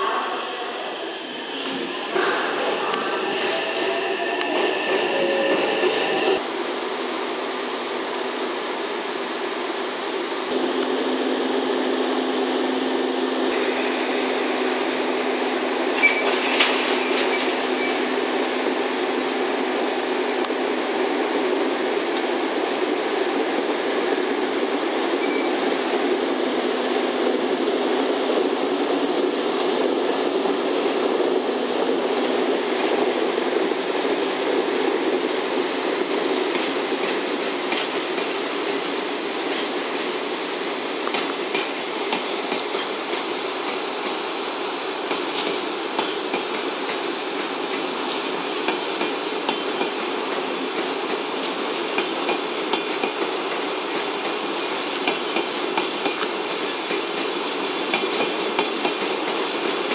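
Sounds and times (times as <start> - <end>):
train running noise: 0.0 - 59.9
metallic squeaks and clicks: 16.0 - 18.0.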